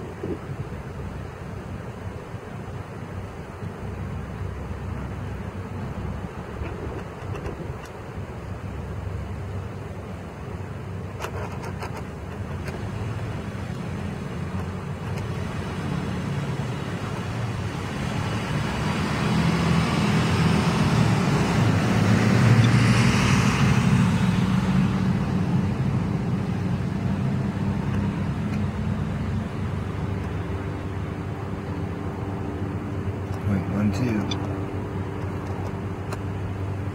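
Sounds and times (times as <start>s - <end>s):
vehicle passing with low rumble: 12.2s - 36.9s.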